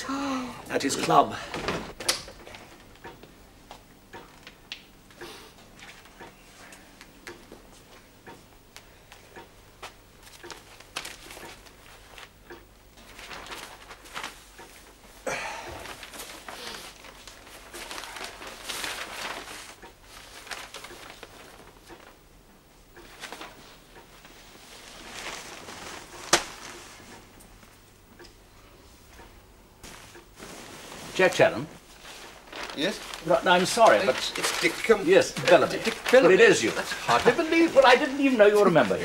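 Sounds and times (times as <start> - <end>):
newspaper pages rustling: 10.2 - 12.3, 13.0 - 14.5, 15.8 - 22.2, 24.7 - 27.0, 29.8 - 39.0.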